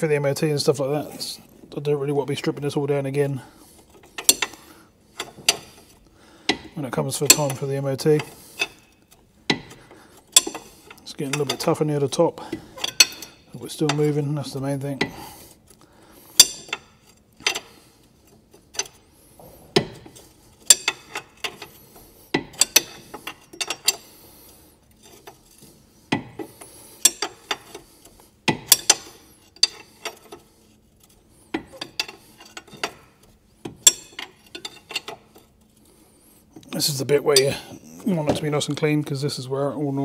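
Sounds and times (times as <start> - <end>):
hand ratchet clicking: 4.1 - 4.6, 9.5 - 11.5, 26.1 - 30.4.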